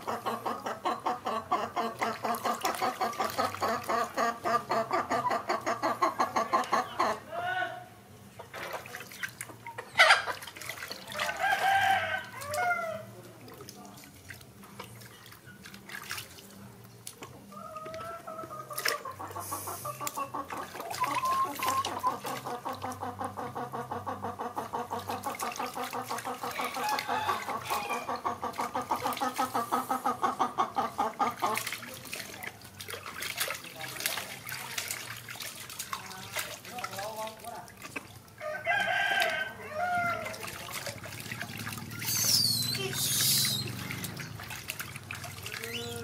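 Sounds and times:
water splashing and dripping: 0.0 - 7.0, 8.5 - 46.0
animal calling: 17.6 - 22.4, 41.8 - 44.1, 45.5 - 46.0.

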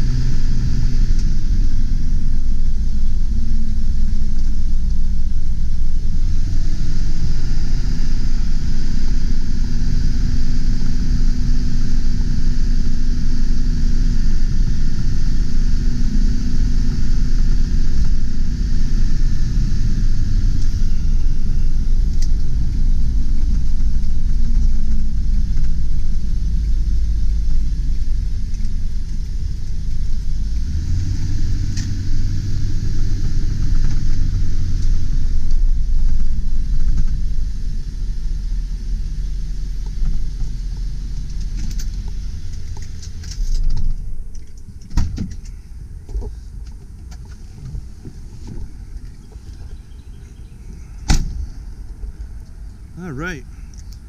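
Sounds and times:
diesel truck engine running: 0.0 - 54.0.

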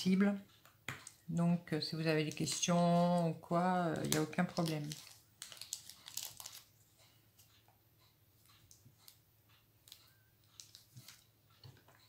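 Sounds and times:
plastic bag crinkling in hands: 3.9 - 6.7.

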